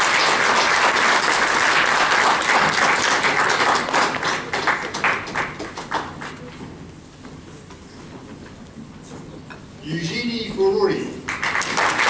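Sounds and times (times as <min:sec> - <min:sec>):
audience applauding: 0:00.0 - 0:06.5, 0:11.2 - 0:12.0.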